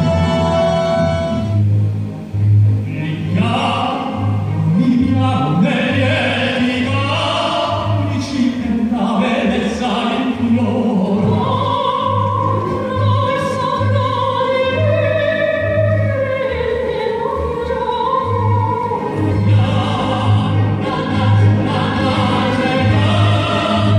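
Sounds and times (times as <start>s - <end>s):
pulsing bass accompaniment: 0.0s - 23.9s
man singing classically: 2.9s - 11.2s
soprano woman singing: 5.6s - 23.9s.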